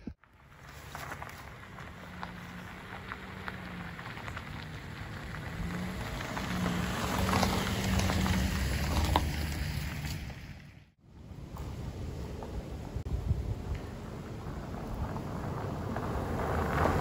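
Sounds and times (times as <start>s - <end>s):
tyres crunching on stones: 0.0s - 10.8s
car driving past on gravel: 0.2s - 10.9s, 13.7s - 17.0s.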